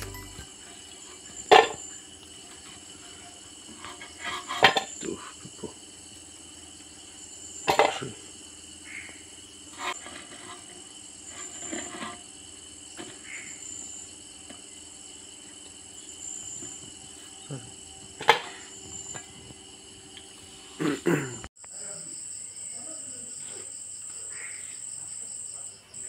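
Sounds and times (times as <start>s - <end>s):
high-pitched drone: 0.0s - 0.5s.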